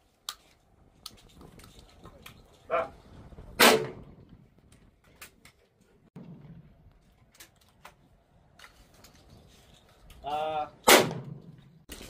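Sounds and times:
shotgun shot: 0:03.6 - 0:04.0, 0:10.8 - 0:11.5.

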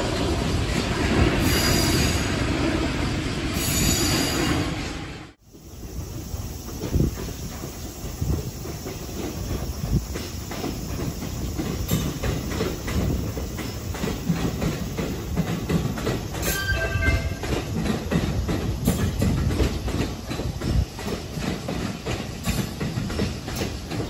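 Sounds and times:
low train rumble: 0:00.0 - 0:24.0
train wheels clacking over rail joints: 0:05.5 - 0:24.0
brief high tones: 0:16.4 - 0:17.6.

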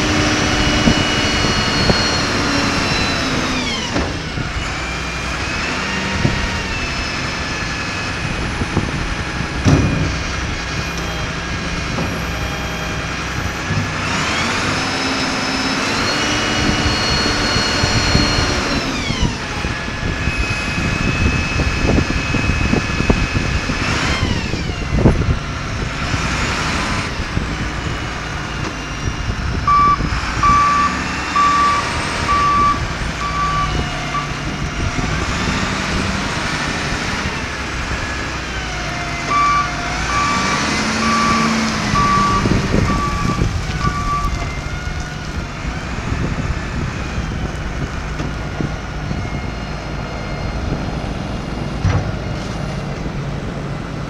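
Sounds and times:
diesel engine revving: 0:00.0 - 0:54.0
reverse alarm beeping: 0:29.7 - 0:34.4, 0:39.3 - 0:44.4.

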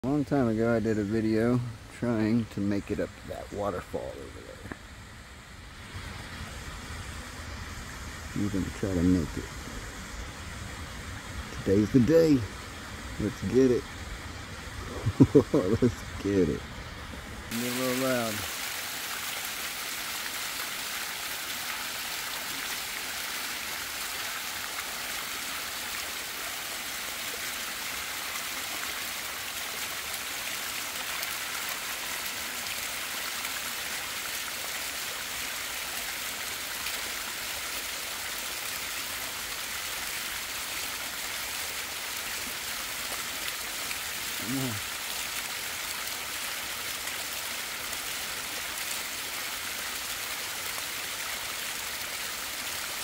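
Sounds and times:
waterfall splashing over rock: 0:17.3 - 0:53.0.

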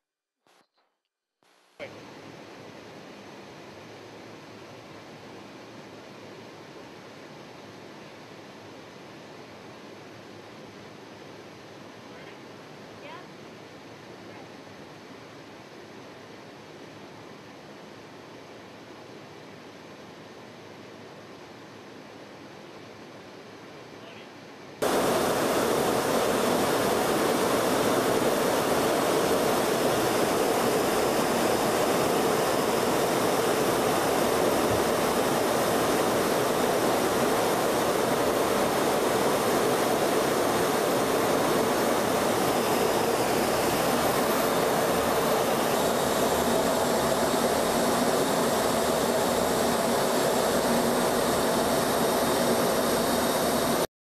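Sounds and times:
jet aircraft in flight: 0:24.8 - 0:53.9.

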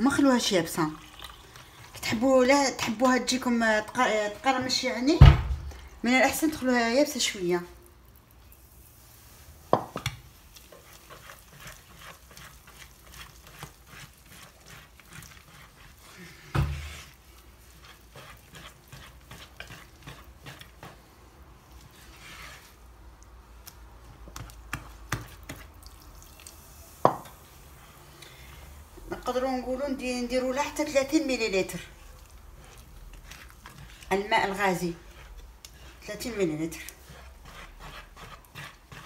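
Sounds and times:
whisk stirring thick batter: 0:09.0 - 0:22.9, 0:23.6 - 0:25.9, 0:29.0 - 0:39.0.

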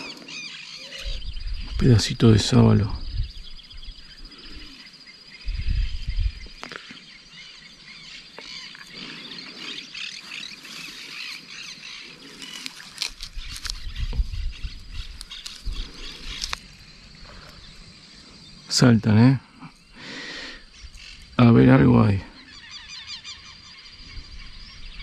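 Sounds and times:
birds chattering: 0:00.0 - 0:25.0
insect trill: 0:00.0 - 0:25.0
microphone handling noise: 0:13.0 - 0:16.6.

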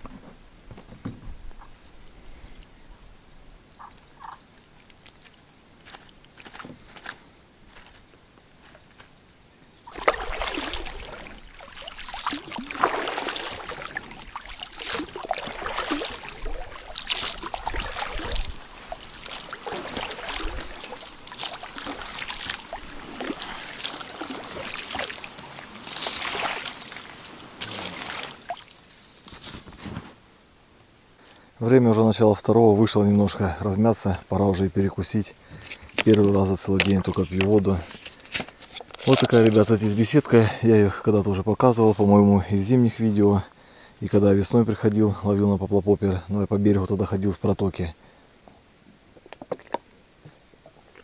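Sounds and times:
faint ticks: 0:00.0 - 0:09.9
water sloshing and splashing: 0:09.8 - 0:29.4, 0:35.6 - 0:40.4, 0:49.1 - 0:51.0.

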